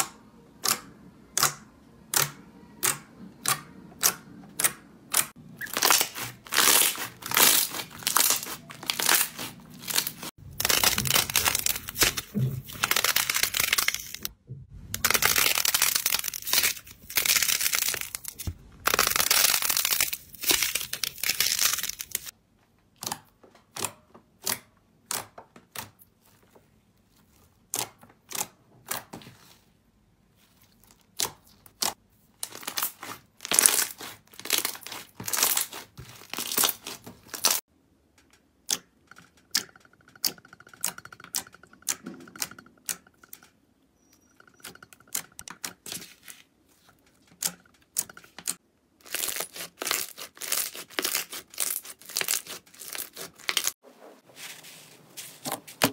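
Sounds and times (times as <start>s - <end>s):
slime crackling and popping: 5.6s - 14.3s, 15.0s - 22.3s, 31.0s - 37.6s, 49.0s - 53.8s.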